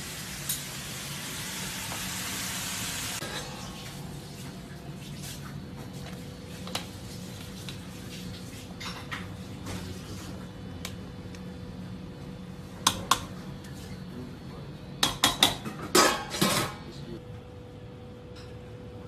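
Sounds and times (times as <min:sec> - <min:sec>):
steady low hum: 0:02.6 - 0:19.0.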